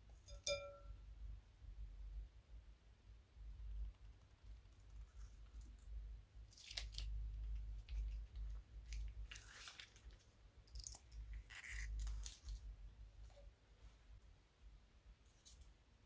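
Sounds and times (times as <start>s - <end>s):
slime squishing: 4.5s - 13.5s.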